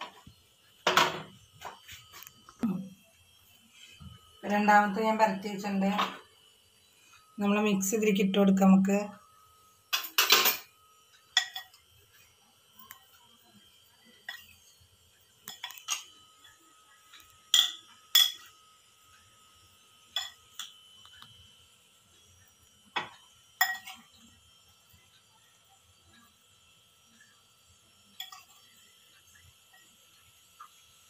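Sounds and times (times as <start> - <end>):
steel spoon clinking against glass: 11.4 - 11.8, 17.5 - 18.5, 23.6 - 24.0.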